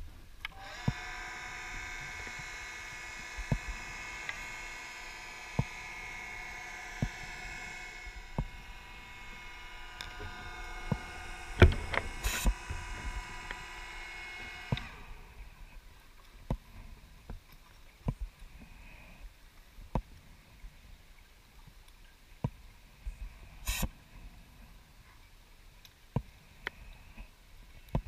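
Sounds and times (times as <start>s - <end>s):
electric motor whining: 0.4s - 15.8s
short hiss: 23.6s - 24.0s.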